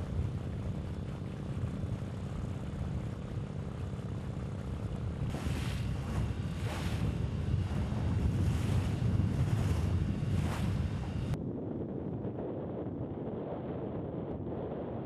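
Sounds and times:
motorboat engine droning: 0:00.0 - 0:11.4
rushing wind and water: 0:00.0 - 0:15.0.

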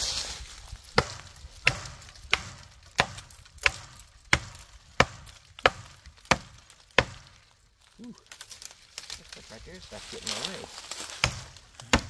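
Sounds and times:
tomahawk chopping into wood: 0:00.9 - 0:07.4, 0:10.8 - 0:12.0.

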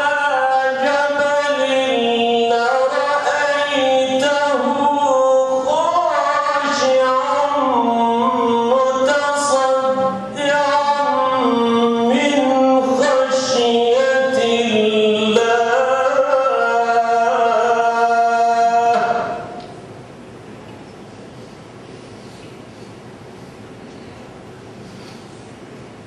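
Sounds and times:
man chanting recitation: 0:00.0 - 0:19.6.

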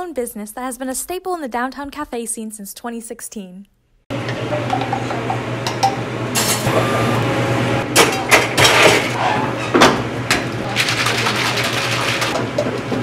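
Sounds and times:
steady hum: 0:04.1 - 0:09.1
shaker cup rattling: 0:10.8 - 0:12.4.

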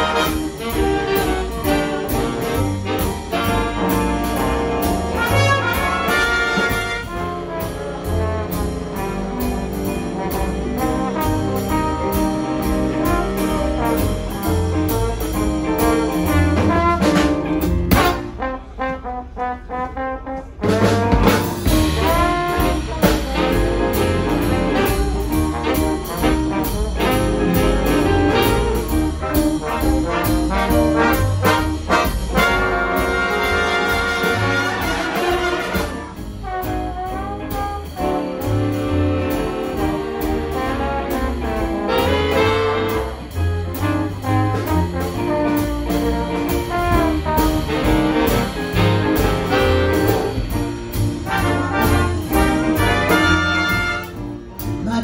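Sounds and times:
big band playing jazz: 0:00.0 - 0:55.0.

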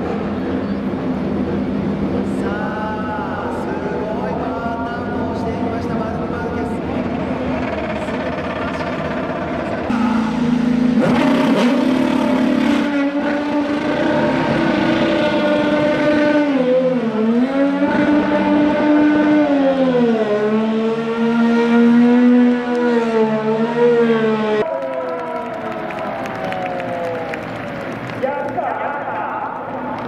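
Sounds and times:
racing car engine revving: 0:06.8 - 0:24.6.

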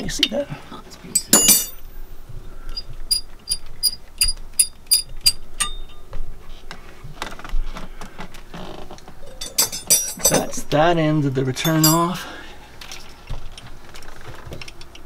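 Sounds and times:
knocks and handling rattles: 0:01.0 - 0:01.9, 0:09.0 - 0:10.7, 0:11.6 - 0:12.2.

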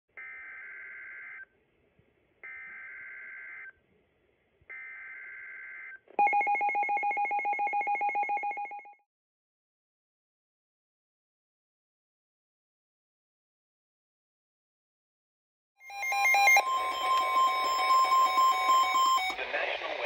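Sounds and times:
buzzy digital header tones: 0:15.9 - 0:19.4
rapid alert tone beeping: 0:15.9 - 0:19.4.

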